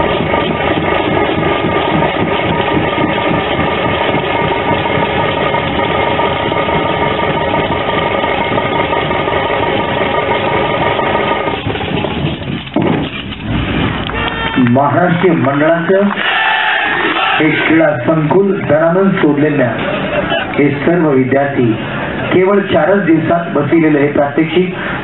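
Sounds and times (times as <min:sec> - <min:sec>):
loud dense drumming: 0:00.0 - 0:16.1.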